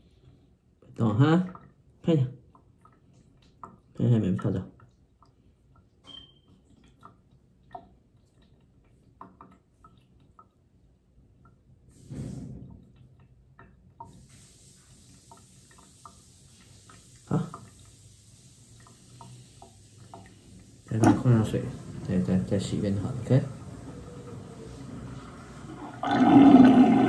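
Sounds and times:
water sloshing in tub: 0.9s - 27.0s
running water hiss: 11.9s - 12.6s, 14.0s - 27.0s.

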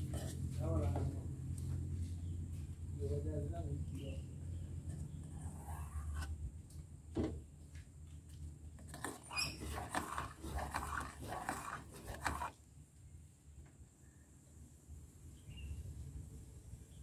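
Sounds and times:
metal spoon scraping saucepan: 4.9s - 6.3s, 8.8s - 12.5s.

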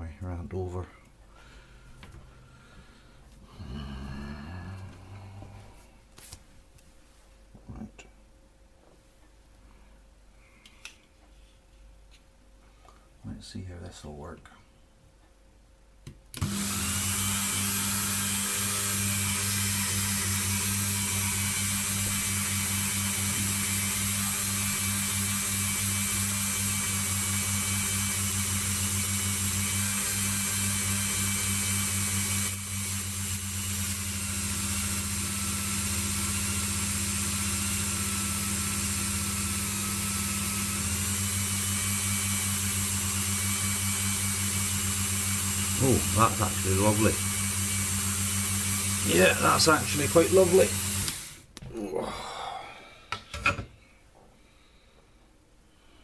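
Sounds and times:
rotary tool whining: 16.4s - 51.4s.

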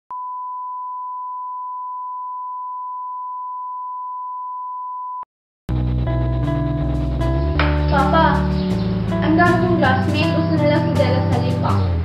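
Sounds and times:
music: 5.7s - 12.0s
steady test tone: 5.7s - 12.0s.

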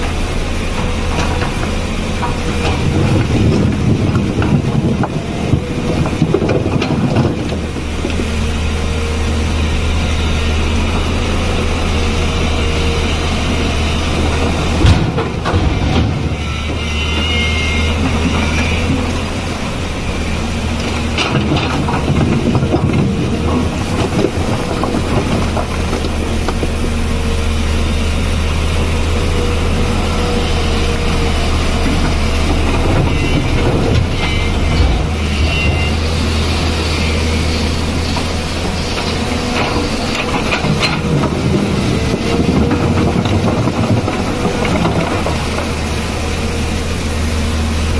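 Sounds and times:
excavator diesel engine running: 0.0s - 47.9s
rocks clattering: 20.9s - 26.8s, 38.2s - 46.2s.

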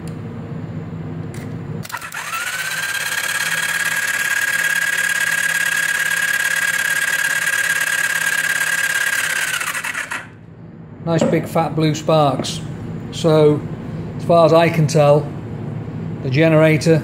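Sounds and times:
starter motor whine: 1.8s - 10.4s.

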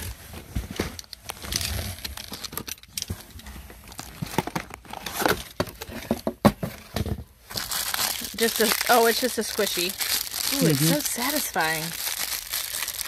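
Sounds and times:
plastic packaging crinkling: 7.5s - 13.0s.

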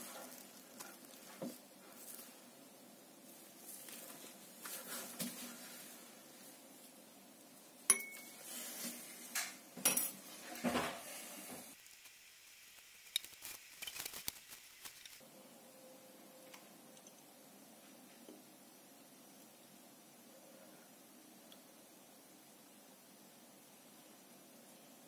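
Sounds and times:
glass beaker clinking: 7.9s - 8.4s.

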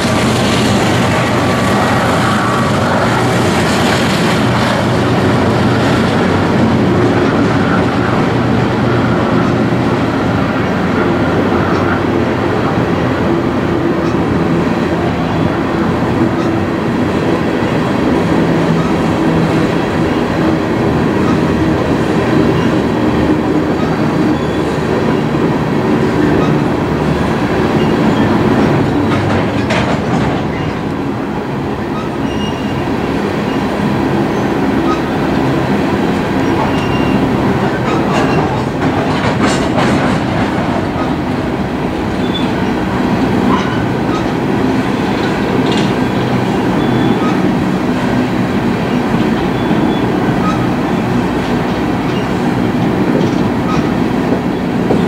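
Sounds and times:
train wheels rumbling on rails: 0.0s - 55.0s
clicks over rail joints: 28.6s - 31.0s
faint wheel squeals: 31.9s - 32.9s, 36.4s - 37.3s, 46.7s - 47.4s.

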